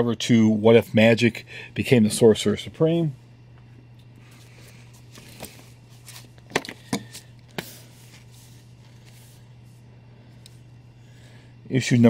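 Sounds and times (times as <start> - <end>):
low room hum: 0.0 - 12.0
paper and cardboard rustling: 5.0 - 9.4.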